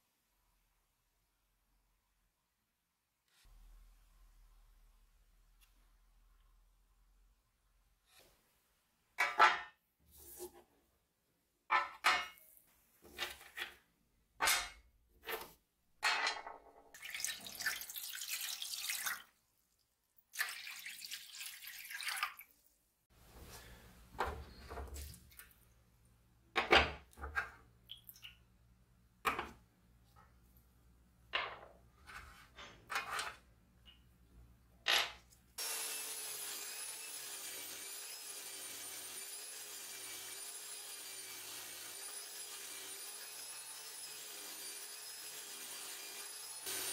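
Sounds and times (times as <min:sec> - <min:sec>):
liquid pouring: 0:17.0 - 0:19.4, 0:20.3 - 0:22.6.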